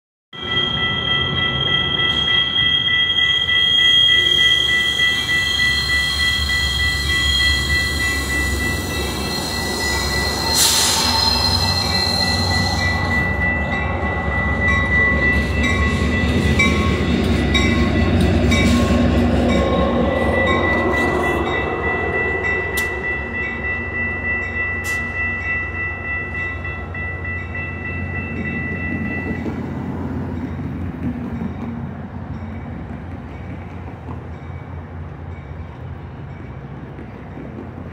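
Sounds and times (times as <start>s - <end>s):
wheel squeal on rails: 0.4s - 23.0s.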